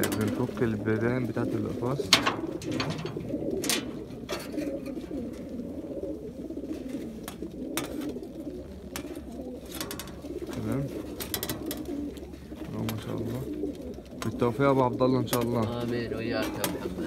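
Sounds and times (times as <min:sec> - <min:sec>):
pigeons cooing: 0:00.0 - 0:17.0.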